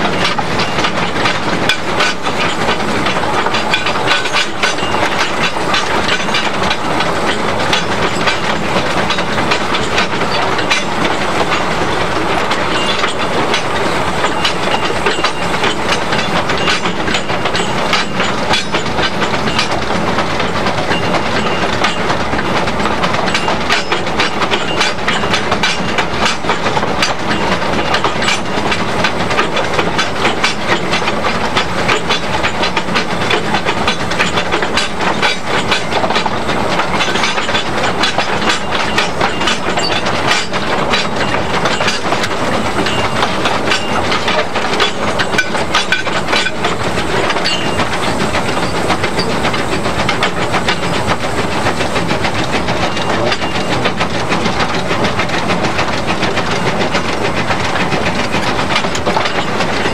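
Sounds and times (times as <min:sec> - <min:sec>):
train wheels clattering on track: 0:00.0 - 0:59.9.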